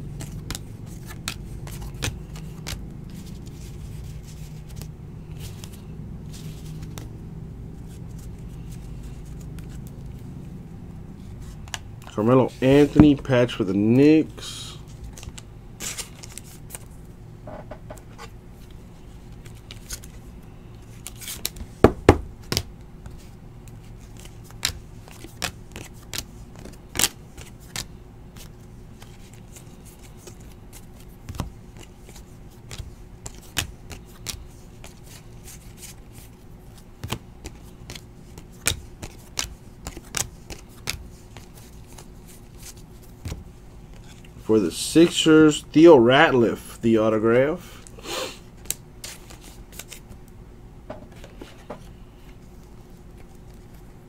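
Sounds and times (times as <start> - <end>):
faint steady hum: 0.0 - 54.0
trading cards snapping and clicking: 0.2 - 2.9, 24.1 - 29.1, 30.7 - 35.2, 37.0 - 42.1.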